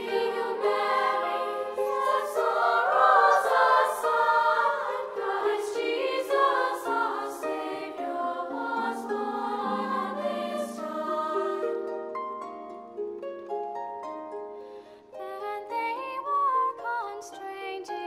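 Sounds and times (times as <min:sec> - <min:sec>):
choir singing a carol: 0:00.0 - 0:12.2.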